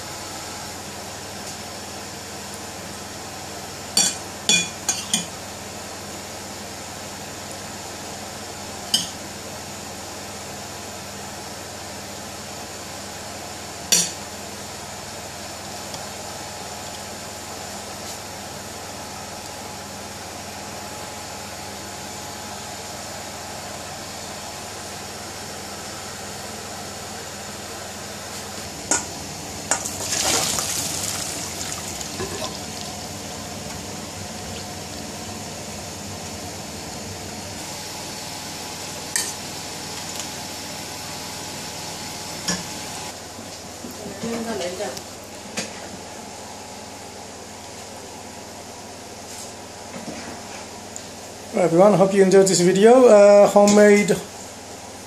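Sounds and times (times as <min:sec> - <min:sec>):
steady background hum: 0:00.0 - 0:55.0
water splashing into colander: 0:29.8 - 0:33.0.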